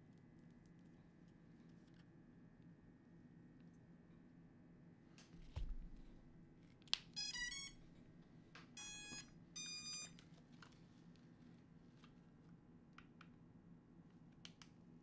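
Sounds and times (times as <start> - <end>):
soft knock: 5.4 - 6.1
motor startup beeps: 7.2 - 7.8, 8.8 - 10.1.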